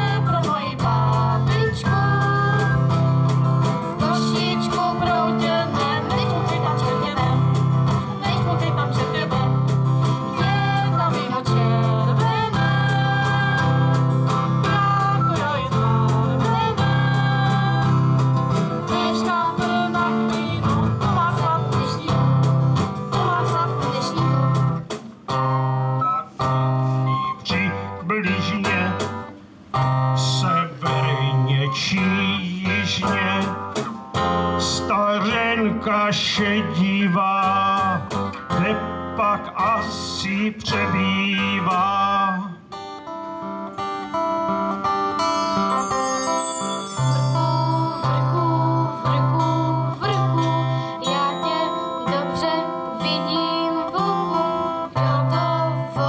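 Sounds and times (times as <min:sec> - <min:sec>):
people singing through a pa: 0:00.0 - 0:03.0, 0:03.8 - 0:07.6, 0:08.2 - 0:24.7, 0:47.6 - 0:56.0
acoustic guitars strumming: 0:00.0 - 0:56.0.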